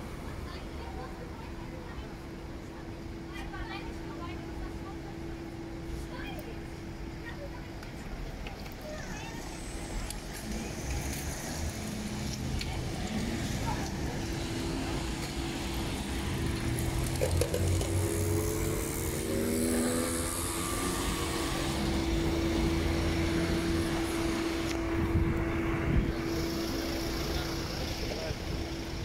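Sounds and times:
motor vehicle droning: 9.7s - 29.0s.

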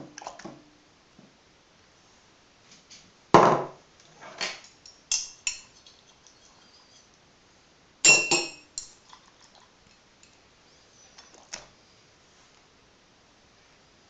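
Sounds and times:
crockery knocking and clinking: 4.4s - 6.1s, 8.1s - 9.0s.

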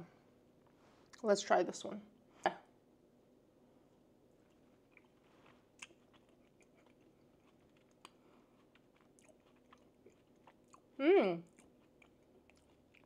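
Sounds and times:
soft chewing crunches: 4.3s - 13.0s.

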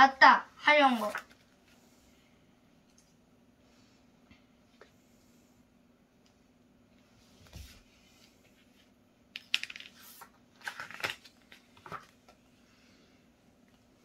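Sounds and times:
paper pages turning: 0.9s - 1.8s, 9.4s - 12.3s.

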